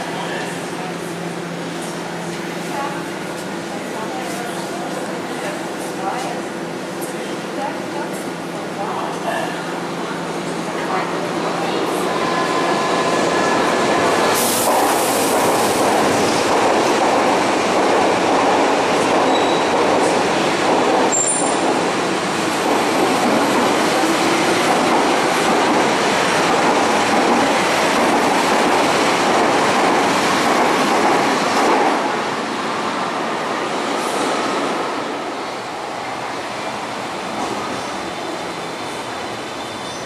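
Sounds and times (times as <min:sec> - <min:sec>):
train wheels and motors: 0:11.7 - 0:32.2.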